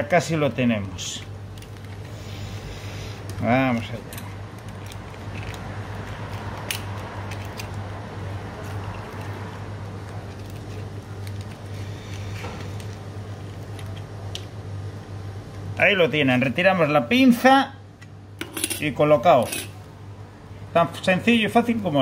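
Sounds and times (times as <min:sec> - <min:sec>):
steady low hum: 0:00.0 - 0:22.0
rubbing and handling noise: 0:00.7 - 0:14.3.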